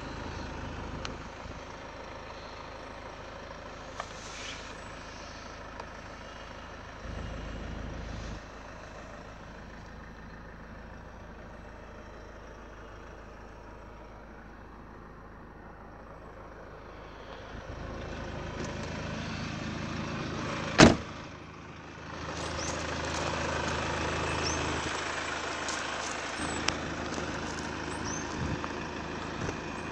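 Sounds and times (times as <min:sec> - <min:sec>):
car engine idling: 0:00.0 - 0:29.9
car door slamming: 0:20.8 - 0:21.1.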